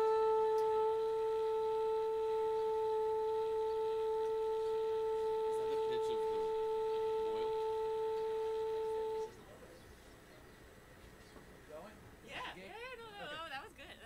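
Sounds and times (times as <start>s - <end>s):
steady musical tuning note: 0.0s - 9.8s.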